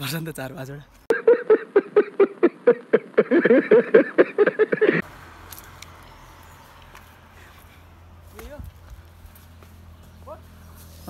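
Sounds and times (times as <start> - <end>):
faint outdoor background noise: 0.0 - 11.0
man laughing heartily: 1.1 - 5.0.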